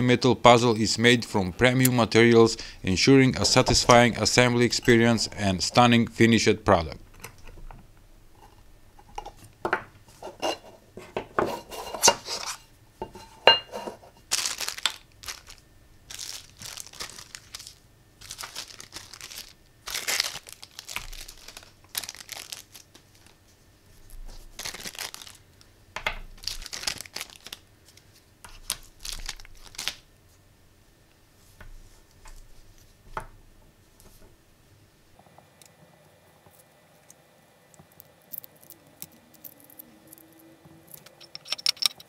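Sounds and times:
plastic bags crinkling: 14.3 - 23.4, 24.3 - 25.6, 26.3 - 30.0
metal parts and tools clicking: 40.9 - 42.0.

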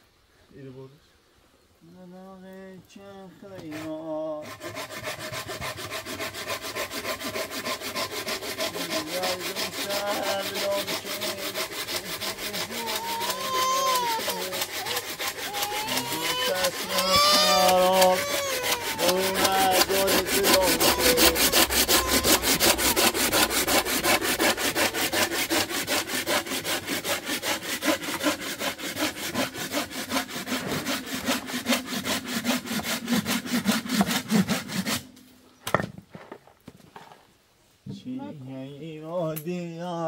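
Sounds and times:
hand saw cutting branch: 3.5 - 35.2.

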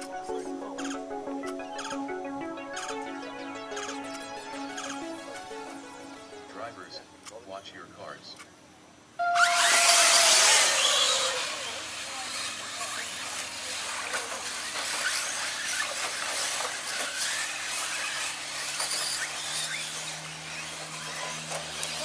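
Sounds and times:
electric motors whining: 0.0 - 6.5, 9.2 - 22.0.

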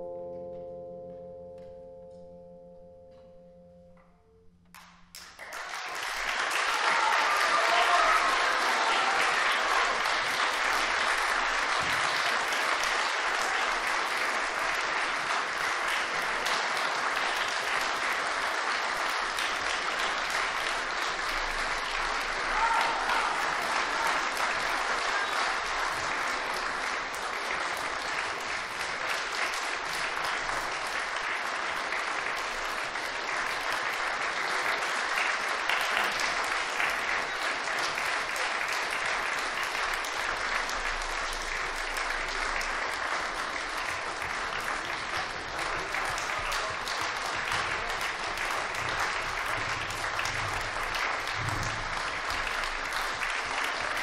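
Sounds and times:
audience applauding: 4.8 - 54.0.

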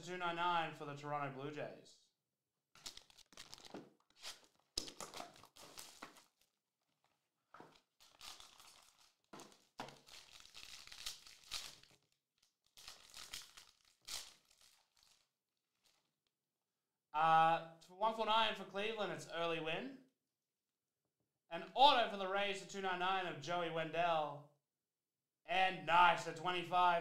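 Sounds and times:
foil and plastic wrapping crinkling: 2.8 - 16.1.

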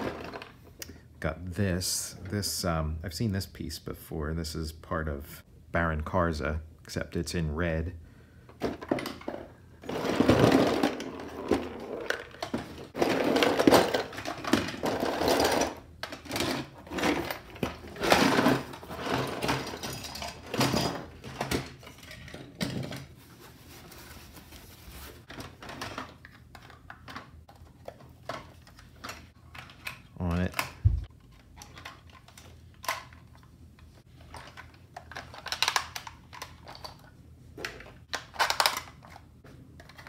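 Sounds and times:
plastic toy parts rattling in box: 8.7 - 23.1, 34.2 - 40.0.

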